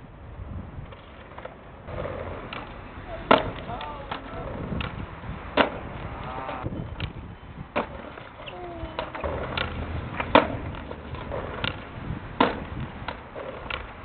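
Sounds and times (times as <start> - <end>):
skateboard clattering on bricks: 0.9 - 14.0.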